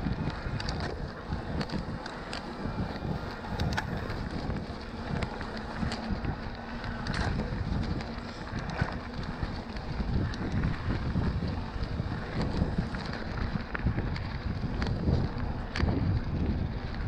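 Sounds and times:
bike rattling over rough trail: 0:00.0 - 0:17.0
wind buffeting microphone: 0:00.0 - 0:17.0.

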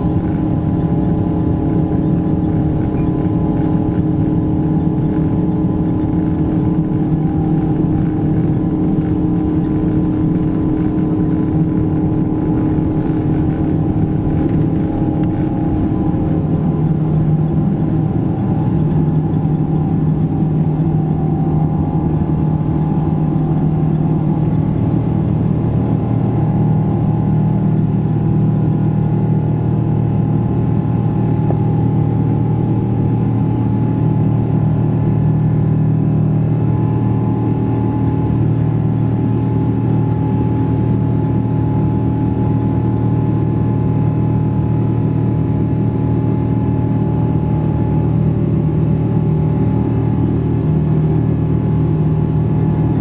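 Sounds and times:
deep rumble: 0:00.0 - 0:53.0
jet engine drone in cabin: 0:00.0 - 0:53.0.

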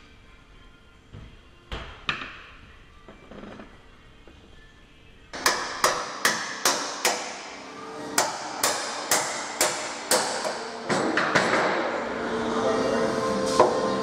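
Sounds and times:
hammer striking steel: 0:05.4 - 0:07.6, 0:08.2 - 0:11.8.

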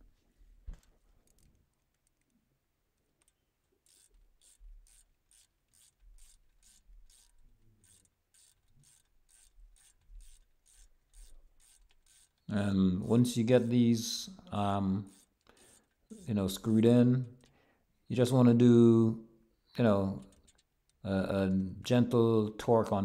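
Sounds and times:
ratchet wrench clicking: 0:03.2 - 0:12.5, 0:15.1 - 0:16.3, 0:20.2 - 0:21.0.

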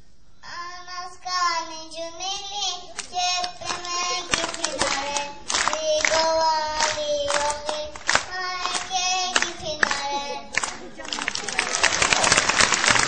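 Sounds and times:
child singing into microphone: 0:00.4 - 0:11.0
crowd noise: 0:02.3 - 0:13.0
audience clapping along: 0:02.9 - 0:13.0.

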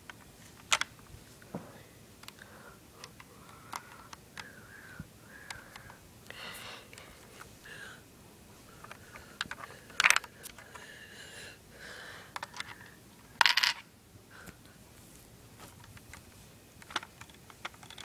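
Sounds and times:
coin clattering: 0:13.4 - 0:13.8
plastic candy dispenser rattling: 0:16.8 - 0:18.0.

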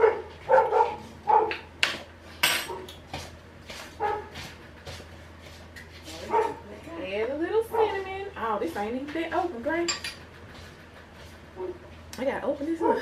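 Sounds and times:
dog barking: 0:00.0 - 0:01.7, 0:04.0 - 0:04.3, 0:06.3 - 0:06.6.

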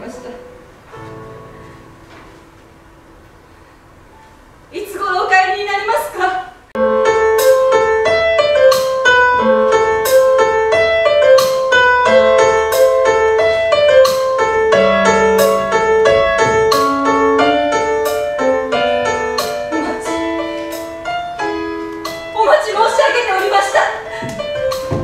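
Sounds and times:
slow piano melody: 0:00.0 - 0:04.7, 0:06.8 - 0:25.0.

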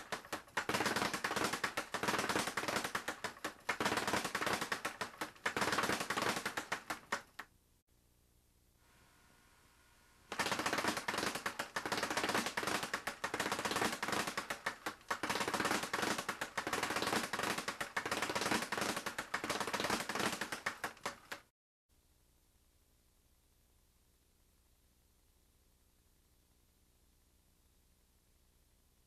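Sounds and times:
speed bag punched rapidly: 0:00.0 - 0:07.4, 0:10.3 - 0:21.5.

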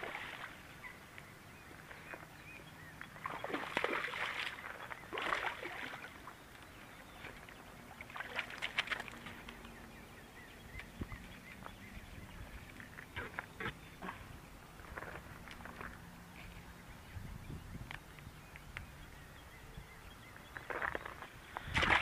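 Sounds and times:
fish thrashing in water: 0:03.2 - 0:06.3, 0:07.4 - 0:09.7, 0:21.6 - 0:22.0.

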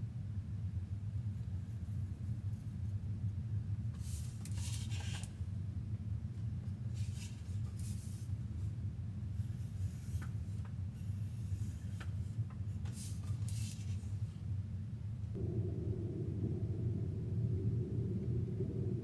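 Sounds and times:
train rumbling: 0:15.3 - 0:19.0.

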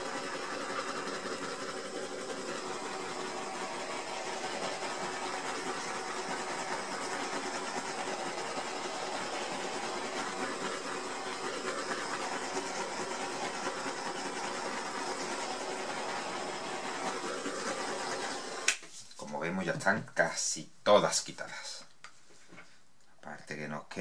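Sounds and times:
gas torch hissing: 0:00.0 - 0:18.8.

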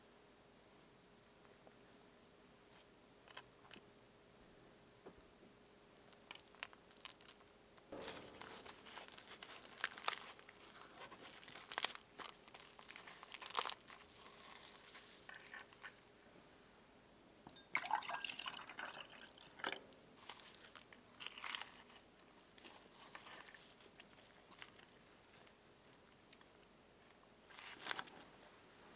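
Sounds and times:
flaky bread crackling: 0:06.1 - 0:16.0, 0:20.2 - 0:26.7, 0:27.4 - 0:28.2
milk pouring into glass: 0:17.5 - 0:19.8.

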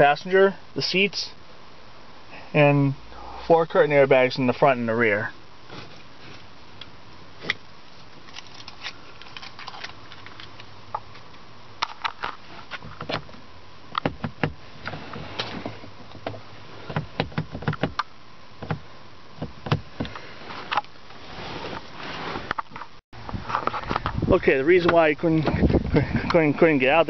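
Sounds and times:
car door handle clicking and clunking: 0:14.0 - 0:14.6, 0:16.2 - 0:18.0.

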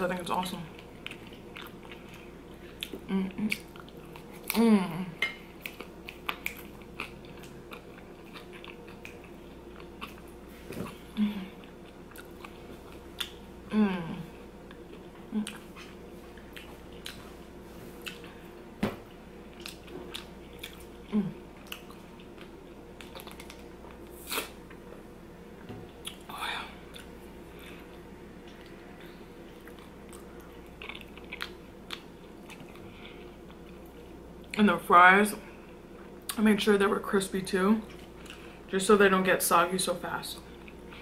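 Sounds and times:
chewing and wet mouth sounds: 0:00.4 - 0:04.6, 0:05.2 - 0:13.5, 0:14.1 - 0:18.7, 0:19.4 - 0:25.0, 0:25.9 - 0:34.7, 0:37.8 - 0:38.7, 0:40.3 - 0:41.0.

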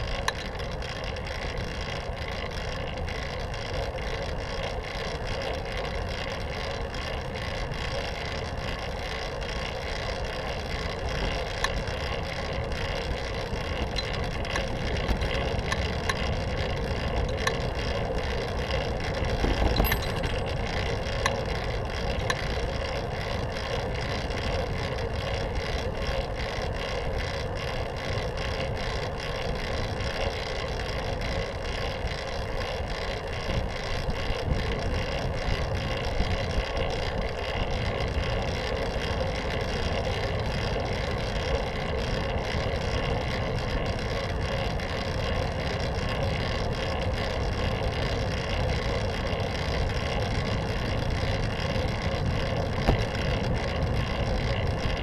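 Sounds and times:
bicycle tyres rolling: 0:00.0 - 0:55.0
small rattles and clicks: 0:00.0 - 0:55.0
bicycle bump: 0:19.1 - 0:21.5, 0:52.0 - 0:55.0.

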